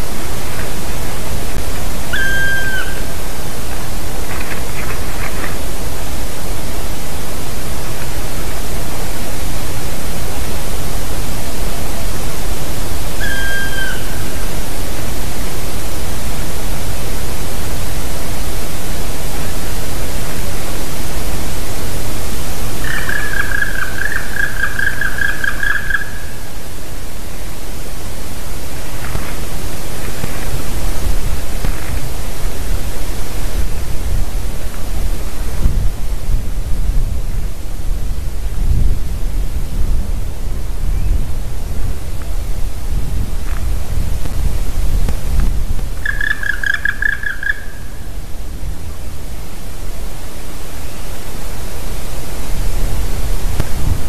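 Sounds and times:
loud rushing hiss: 0.0 - 46.1, 47.6 - 54.0
woodpecker calling: 2.0 - 3.3, 13.2 - 14.5, 22.8 - 26.6, 46.0 - 48.2.

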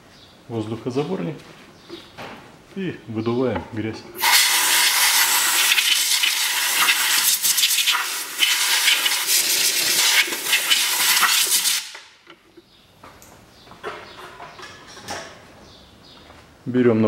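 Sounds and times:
compressed air hissing: 4.2 - 12.0.

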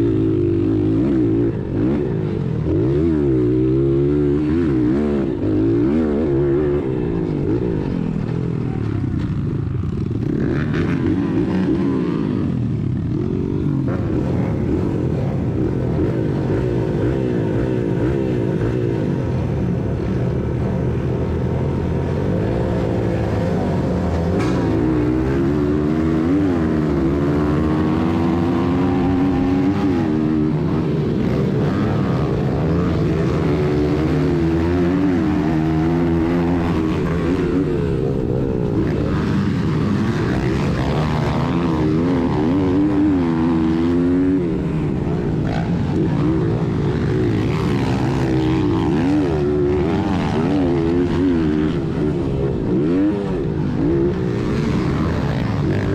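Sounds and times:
dirt bike engine revving: 0.0 - 55.9
minibike engines: 0.0 - 55.9.

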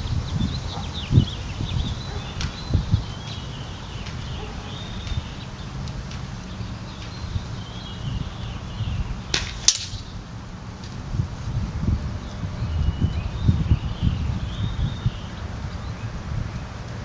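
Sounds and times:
small birds chirping: 0.0 - 17.0
wind rumble on microphone: 0.0 - 17.0.

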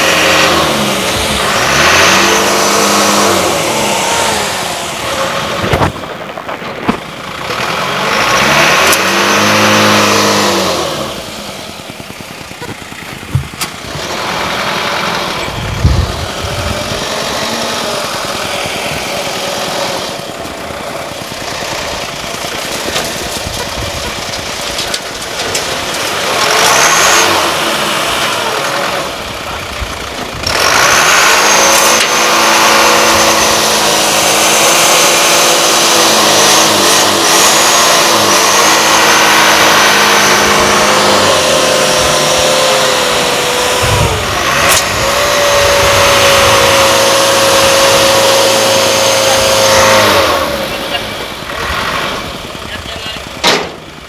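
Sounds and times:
truck engines revving hard: 0.0 - 54.0
sharp thump: 13.2 - 13.7, 53.4 - 53.8.

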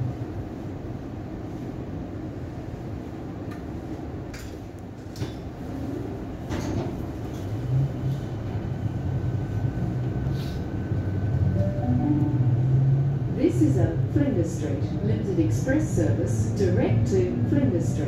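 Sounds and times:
electric train rumbling: 7.0 - 18.0
low hum: 11.6 - 13.4.

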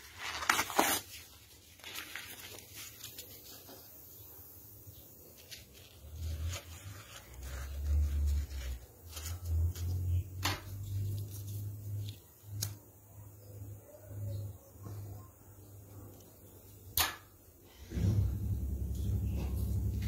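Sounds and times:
low rumble of handling noise: 5.2 - 12.7, 17.7 - 20.0.

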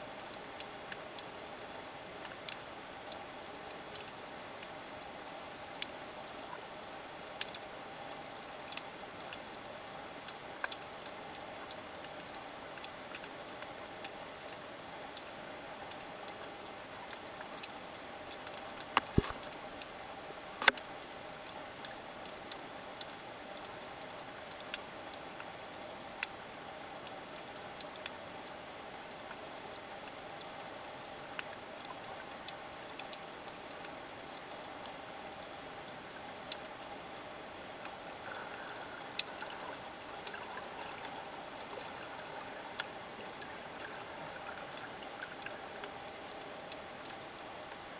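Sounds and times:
sharp clicks and crackles: 18.3 - 19.9, 20.6 - 23.2, 31.4 - 47.9.

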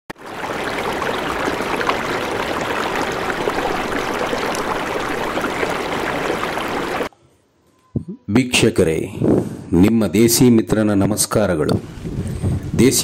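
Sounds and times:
small water splashes: 0.1 - 7.1
turbulent water rushing: 0.1 - 7.1.

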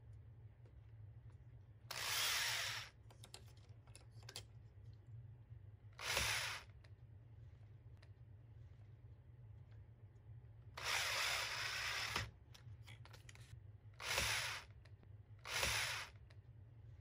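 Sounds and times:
cordless drill whining: 1.9 - 3.0, 6.0 - 6.7, 10.8 - 12.3, 14.0 - 14.7, 15.4 - 16.2.

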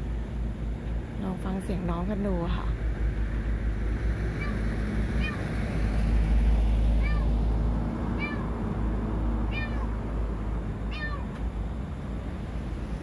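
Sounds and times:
steady low rumble: 0.0 - 13.0
cat meowing: 4.4 - 4.6, 5.2 - 5.5, 7.0 - 7.3, 8.2 - 8.5, 9.5 - 10.0, 10.9 - 11.4.

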